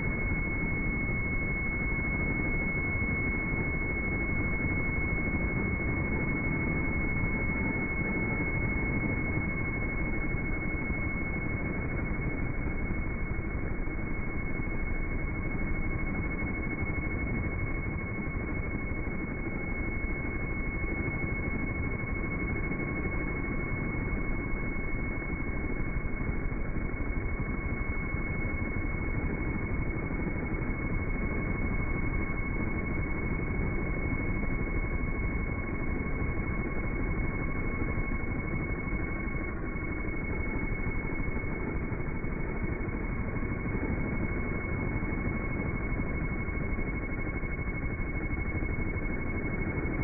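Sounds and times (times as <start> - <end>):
faint high-pitched tones: 0.0 - 50.0.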